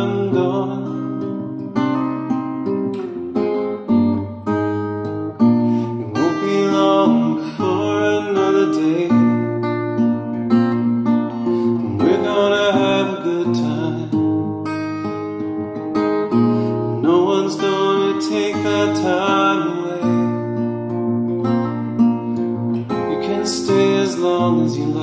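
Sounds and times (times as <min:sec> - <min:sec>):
man singing: 0:00.0 - 0:01.5, 0:05.8 - 0:09.8, 0:11.6 - 0:14.6, 0:16.6 - 0:20.7, 0:22.9 - 0:25.0
acoustic guitar: 0:00.0 - 0:25.0.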